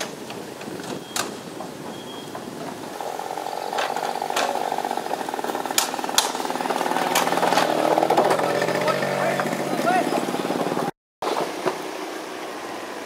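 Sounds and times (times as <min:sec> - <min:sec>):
small motorcycle engine: 0:02.9 - 0:13.0.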